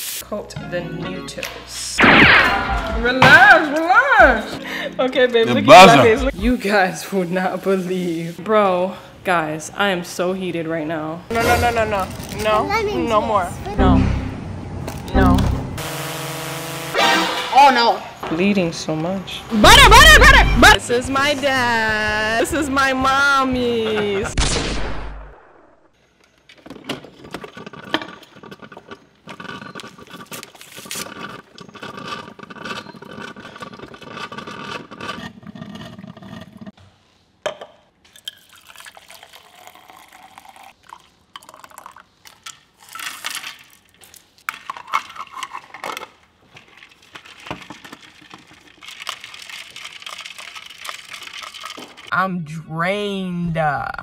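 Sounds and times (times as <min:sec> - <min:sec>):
plastic cups clinking: 0:37.5 - 0:52.1
drink pouring into plastic cup: 0:38.1 - 0:45.0, 0:46.6 - 0:52.1.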